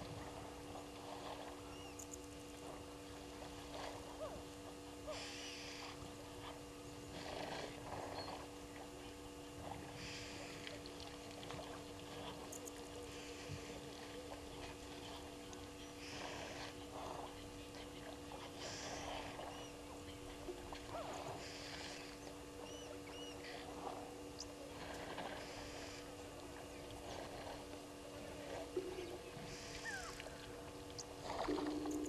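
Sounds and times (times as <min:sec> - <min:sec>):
steady low hum: 0:00.0 - 0:32.0
water splashing and sloshing: 0:00.0 - 0:32.0.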